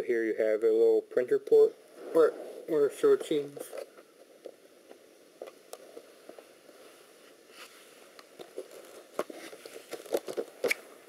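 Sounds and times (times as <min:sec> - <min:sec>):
faint steady hiss: 0:00.0 - 0:11.0.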